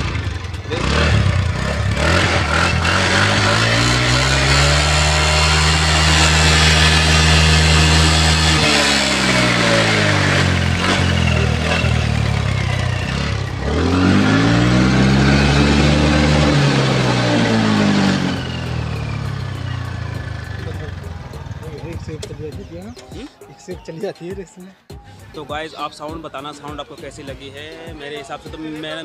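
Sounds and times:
scooter engine revving: 0.0 - 23.0.

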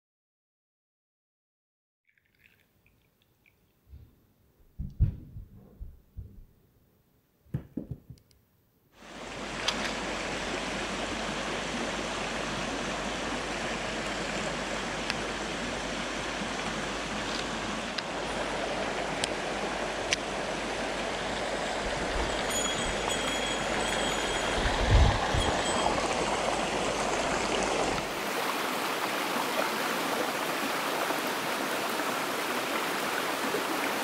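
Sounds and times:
soft knocks: 4.8 - 6.5, 7.5 - 8.2
mountain stream rushing: 9.0 - 34.0.

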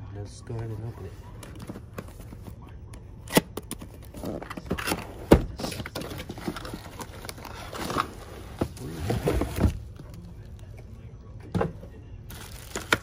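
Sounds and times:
cardboard and plastic wrap rustling: 3.8 - 10.5, 12.3 - 13.0.

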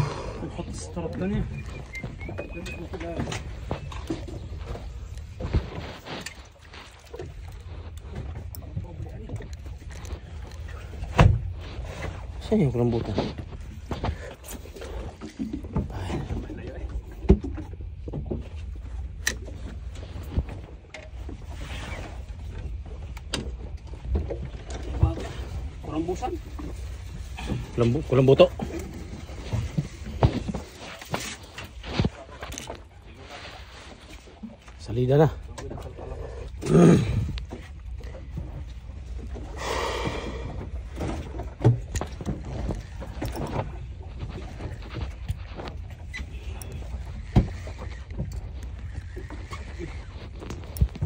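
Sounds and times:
boat engine rumble: 0.0 - 51.0
wind rumbling on microphone: 35.7 - 51.0.

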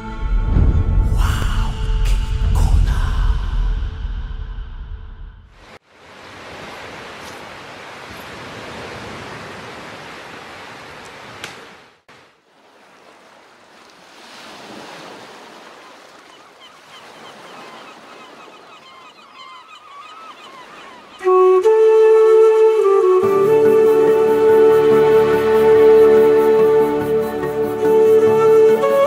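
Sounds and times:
small waves breaking on shore: 5.6 - 21.2.

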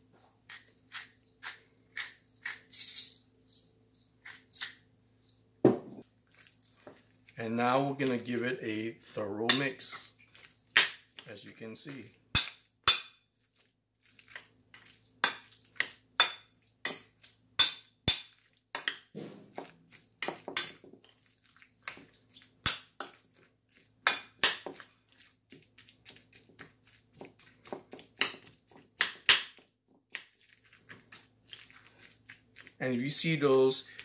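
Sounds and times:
metal spoon clinking in ceramic bowl: 12.4 - 13.2, 20.2 - 20.8.

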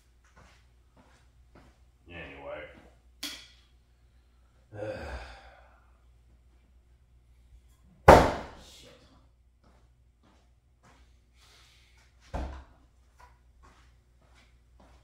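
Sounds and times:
person sighing: 4.7 - 6.0
hatchet thunking into wood: 8.1 - 8.6.

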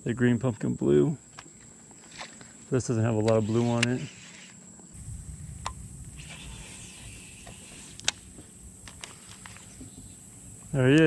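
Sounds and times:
fishing reel whirring: 6.1 - 8.1.

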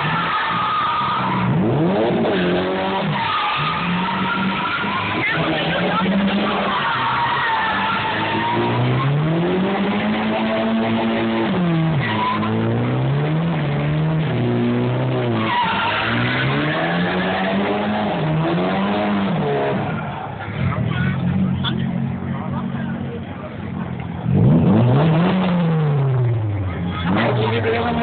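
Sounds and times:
tyres squealing: 0.0 - 9.4, 15.3 - 18.6
car engine revving: 0.0 - 28.0.

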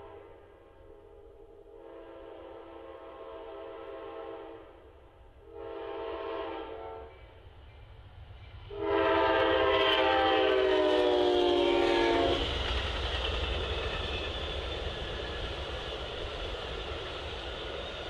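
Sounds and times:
train passing rumble: 0.0 - 18.0
locomotive air horn blasts: 1.7 - 4.7, 5.4 - 7.2, 8.7 - 12.4.

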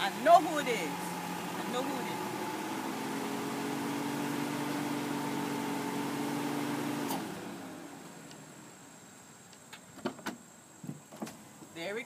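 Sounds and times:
power window motor humming: 0.6 - 8.3.

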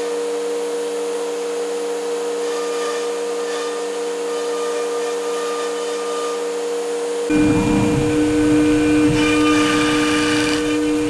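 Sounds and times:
router spindle high whine: 1.2 - 11.0
dust extraction hiss: 7.3 - 11.0.

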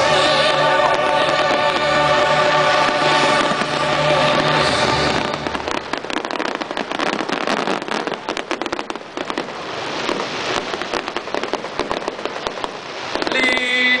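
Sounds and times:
steady held tone: 0.0 - 6.3
fireworks crackling: 0.0 - 14.0.

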